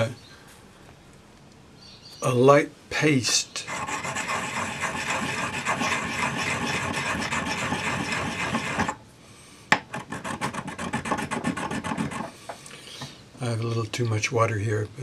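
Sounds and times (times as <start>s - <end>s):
gritty grinding on ceramic dish: 3.7s - 9.0s, 9.9s - 12.3s.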